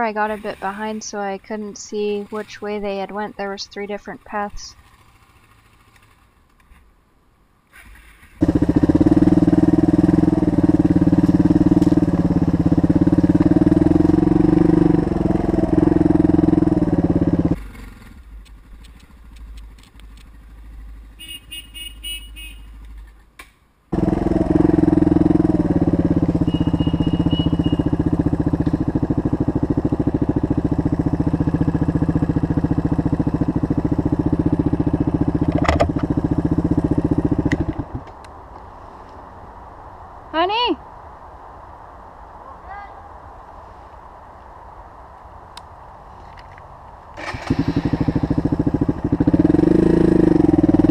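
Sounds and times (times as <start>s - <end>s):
motorcycle engine revving: 2.0s - 6.4s, 7.9s - 23.1s, 23.9s - 38.1s, 47.2s - 50.9s.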